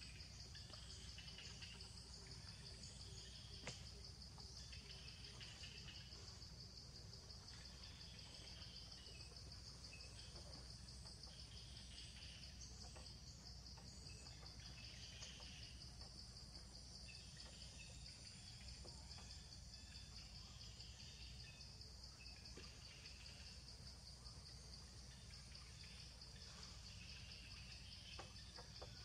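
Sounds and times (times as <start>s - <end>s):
insects pulsing drone: 0.0s - 29.0s.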